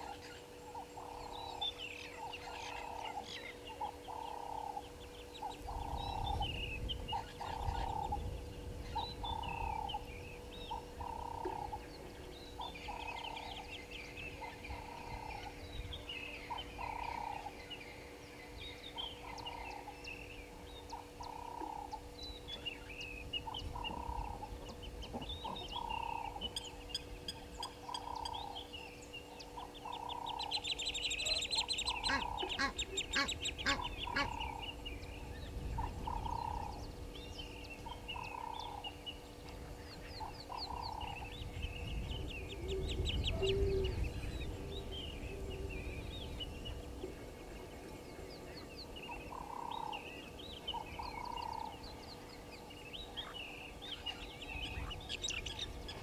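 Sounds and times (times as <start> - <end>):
goose honking: 32.0 - 34.4.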